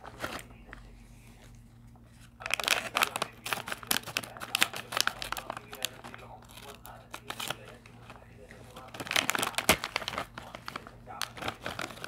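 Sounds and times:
plastic snack bag crinkling: 2.2s - 12.0s
bag tearing with sharp crackles: 8.8s - 12.0s.

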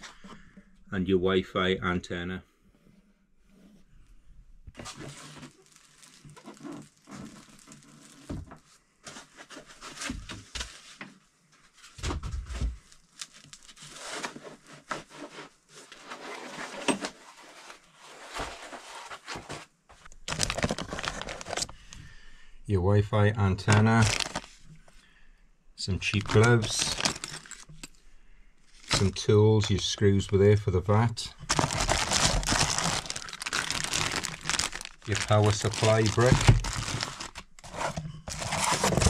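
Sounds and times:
plastic wrapping crinkling: 4.8s - 8.6s, 12.8s - 14.3s, 20.0s - 22.0s, 23.6s - 24.9s, 26.0s - 28.0s, 28.7s - 30.0s, 31.4s - 39.0s.

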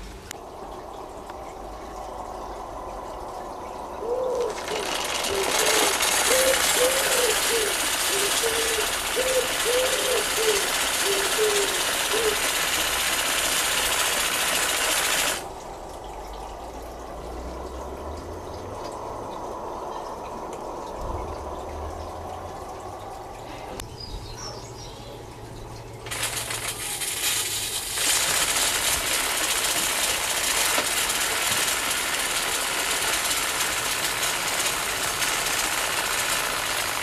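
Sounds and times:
steam hissing: 4.5s - 15.4s, 26.1s - 37.0s.

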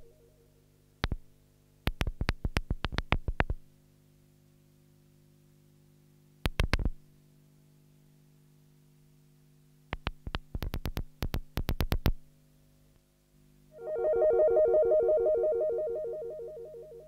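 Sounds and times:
synthesizer drone: 13.8s - 17.0s.

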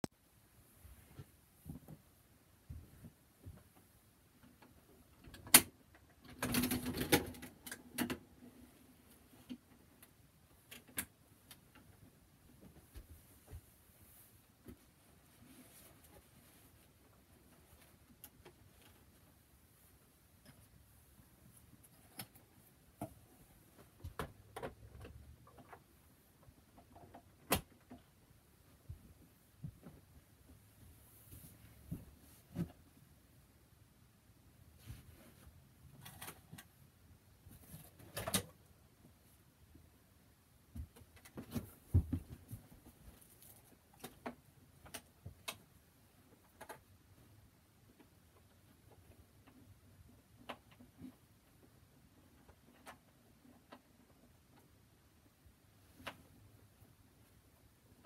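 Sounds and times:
rustling: 8.5s - 24.3s, 40.8s - 45.3s.

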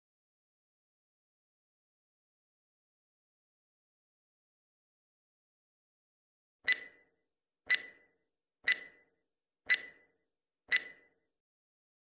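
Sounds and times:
clock ticks with bright ring: 6.7s - 11.3s.

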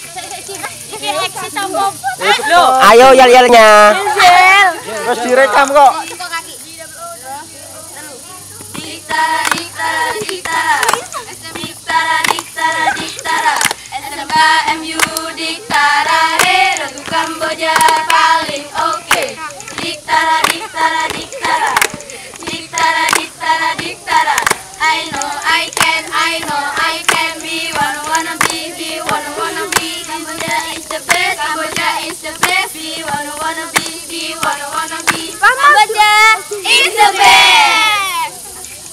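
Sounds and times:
girls singing a cheer in unison: 7.9s - 38.4s
hands clapping in rhythm: 8.6s - 35.9s.

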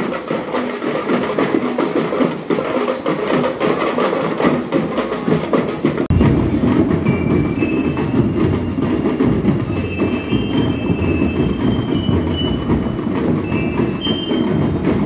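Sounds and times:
marching band playing: 0.0s - 15.0s
rumble of drums: 0.0s - 15.0s
bell lyres ringing melody: 6.5s - 15.0s.

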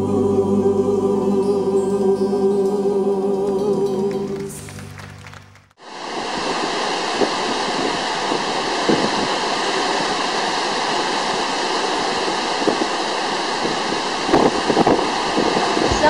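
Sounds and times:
heavy surf breaking on seawall: 5.8s - 16.0s
strong wind: 5.8s - 16.0s.

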